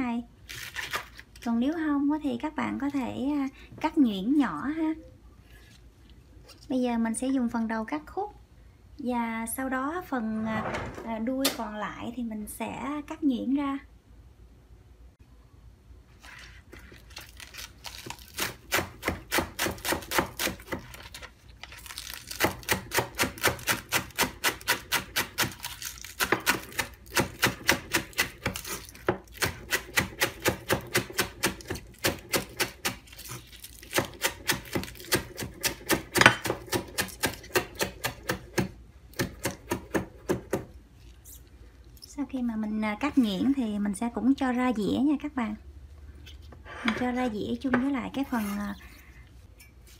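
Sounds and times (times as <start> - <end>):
knife chopping on cutting board: 18.4 - 21.0, 26.2 - 33.1, 33.9 - 40.7.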